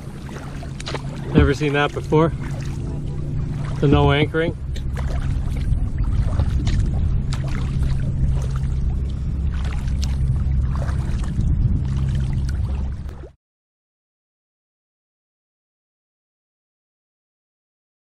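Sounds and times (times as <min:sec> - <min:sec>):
steady low rumble: 0:00.0 - 0:13.4
water lapping at hull: 0:00.0 - 0:13.4
water splashing from paddle: 0:00.0 - 0:13.4.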